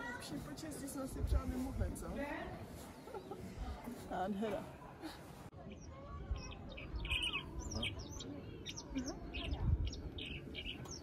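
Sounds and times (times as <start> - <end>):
songbird chirps and trills: 5.5 - 11.0.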